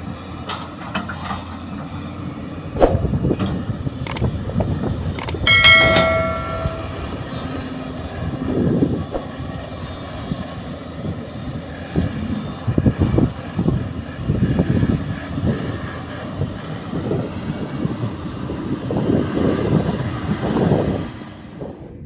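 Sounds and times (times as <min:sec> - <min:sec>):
truck engine rumbling: 0:00.0 - 0:22.0
bell-like chime: 0:05.2 - 0:07.3.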